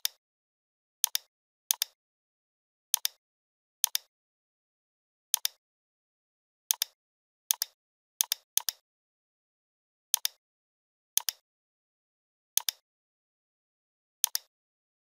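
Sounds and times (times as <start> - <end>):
computer mouse clicks: 1.0 - 2.0, 2.9 - 3.2, 3.8 - 4.1, 5.3 - 5.6, 6.7 - 8.8, 10.1 - 10.4, 11.2 - 11.4, 12.6 - 12.8, 14.2 - 14.5.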